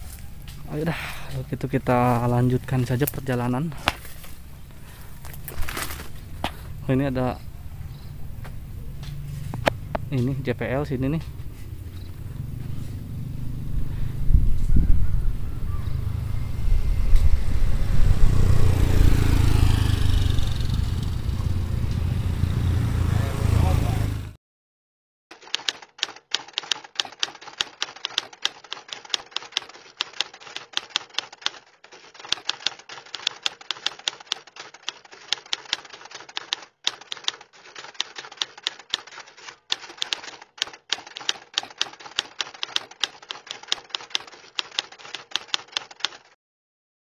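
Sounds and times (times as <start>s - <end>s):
typewriter keys clacking: 25.3s - 46.4s.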